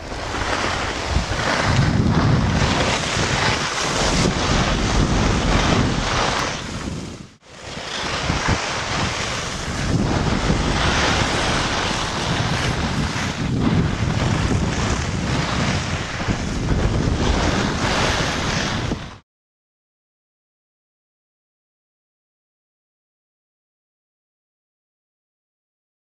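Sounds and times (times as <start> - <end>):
wind buffeting microphone: 0.0 - 19.2.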